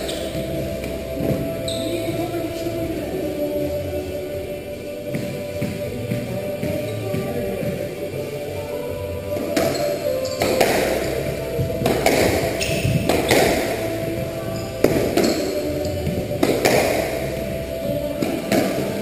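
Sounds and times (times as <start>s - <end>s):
background music: 0.0s - 19.0s
squash ball cracks: 9.4s - 13.9s, 14.8s - 17.2s.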